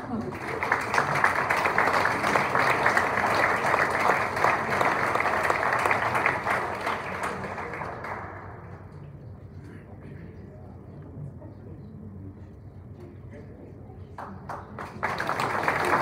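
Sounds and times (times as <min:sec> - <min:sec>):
audience applauding: 0:00.0 - 0:08.6, 0:14.4 - 0:16.0.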